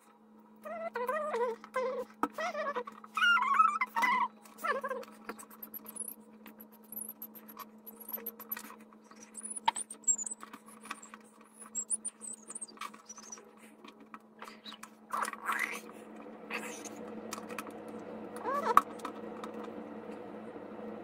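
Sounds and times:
steady low hum: 0.0s - 21.0s
high chirping squeaks: 2.4s - 13.5s, 14.4s - 15.8s.

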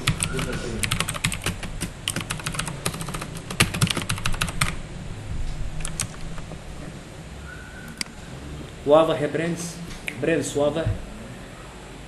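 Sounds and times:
computer keyboard typing: 0.0s - 4.8s, 5.8s - 6.5s.

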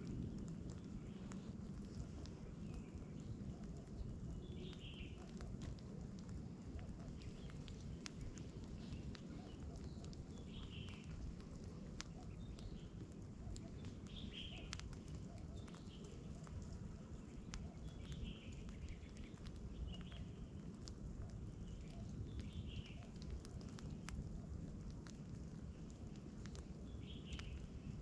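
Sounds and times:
campfire crackling and popping: 0.0s - 28.0s
low steady rumble: 0.0s - 28.0s
bird chirps: 4.3s - 5.2s, 8.8s - 11.1s, 13.6s - 14.7s.

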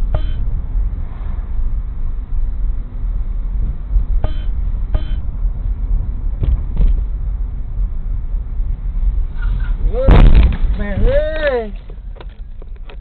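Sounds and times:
short pitched beeps: 0.0s - 0.6s, 4.2s - 5.4s
car road and engine rumble: 0.0s - 13.0s.

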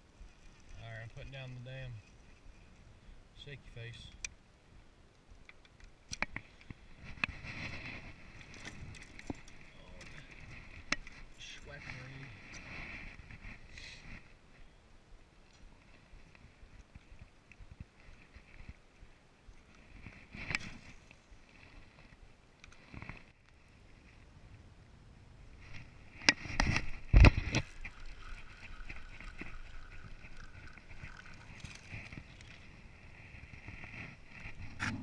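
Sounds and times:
fishing reel whine: 27.0s - 32.7s.

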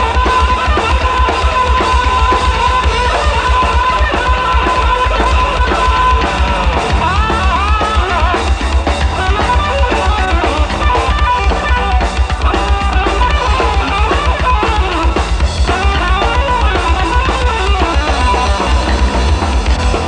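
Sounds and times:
bass guitar: 0.0s - 20.0s
drum kit: 0.0s - 20.0s
electric guitar: 0.0s - 20.0s.

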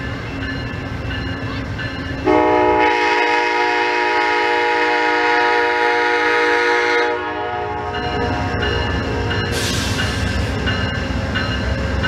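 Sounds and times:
locomotive air horn chord: 2.2s - 8.6s.

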